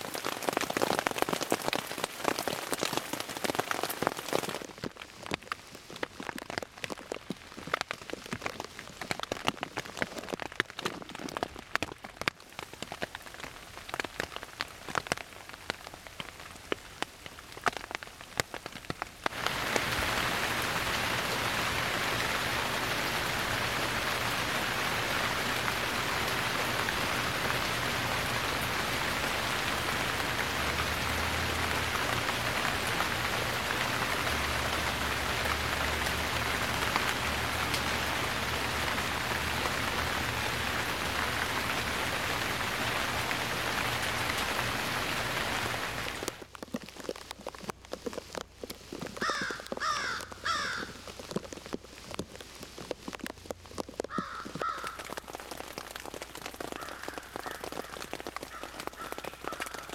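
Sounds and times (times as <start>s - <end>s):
heavy steady rainfall: 0.0s - 59.9s
raindrops pattering: 0.0s - 59.9s.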